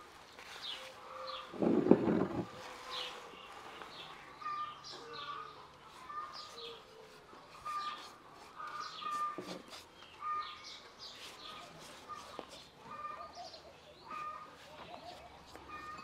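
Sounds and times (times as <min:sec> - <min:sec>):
birds chirping and whistling: 0:07.6 - 0:11.7.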